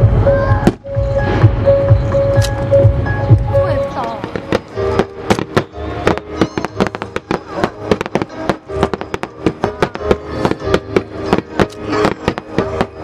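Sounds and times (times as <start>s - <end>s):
music with held tones: 0.0s - 13.0s
fireworks popping and crackling: 3.4s - 13.0s.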